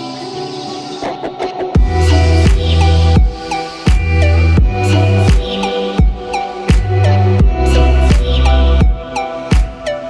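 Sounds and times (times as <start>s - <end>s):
background music with drum beat: 1.3s - 10.0s
sustained bass and chord tones: 1.8s - 9.2s.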